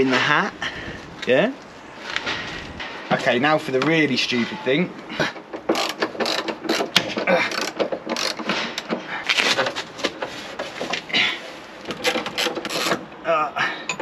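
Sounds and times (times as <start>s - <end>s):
socket ratchet clicking: 5.7s - 8.5s.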